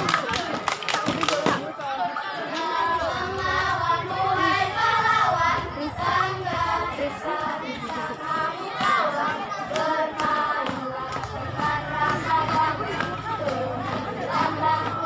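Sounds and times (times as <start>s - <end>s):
sharp hand claps: 0.0s - 1.9s
children singing in chorus: 2.0s - 15.0s.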